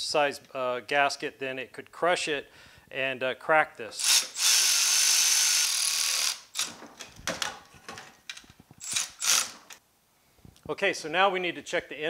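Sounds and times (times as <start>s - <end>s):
cordless ratchet whining: 4.0s - 6.8s, 8.8s - 9.8s.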